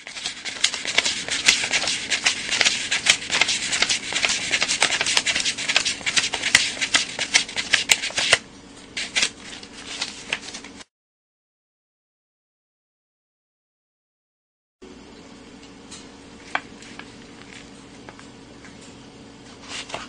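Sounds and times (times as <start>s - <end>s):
banknotes flicked by hand: 0.0s - 8.4s.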